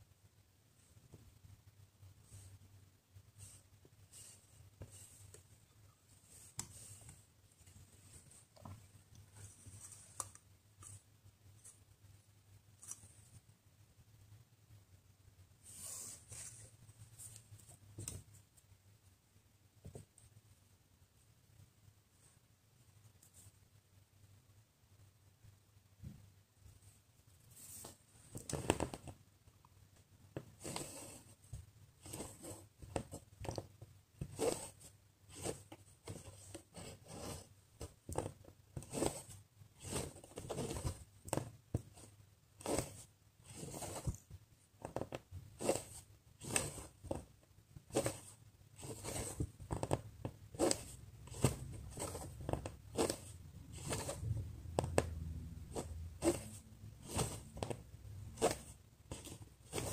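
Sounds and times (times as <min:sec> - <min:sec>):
thread swishing through fabric: 0:34.2 - 0:38.2, 0:38.8 - 0:41.1, 0:41.8 - 0:44.4, 0:45.5 - 0:47.2, 0:47.8 - 0:59.9.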